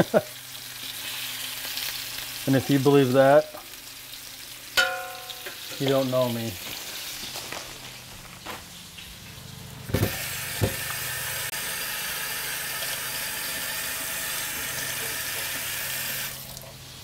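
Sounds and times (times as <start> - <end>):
food sizzling in hot oil: 0.0 - 8.1, 8.7 - 17.0.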